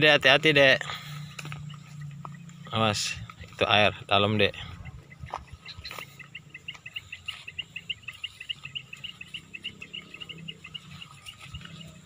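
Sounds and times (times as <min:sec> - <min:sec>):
small animal chirping: 0:04.7 - 0:12.0.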